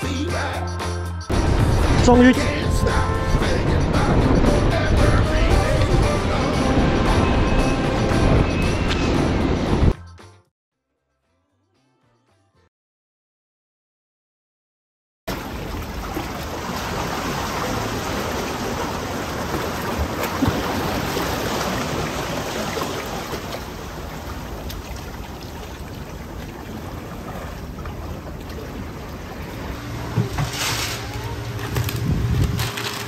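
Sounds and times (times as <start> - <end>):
surf washing against breakwater: 15.3 - 32.0
low hum: 26.0 - 33.0.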